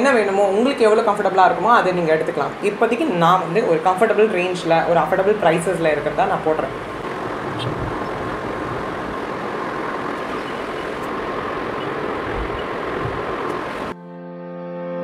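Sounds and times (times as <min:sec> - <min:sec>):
rushing background noise: 0:00.0 - 0:14.0.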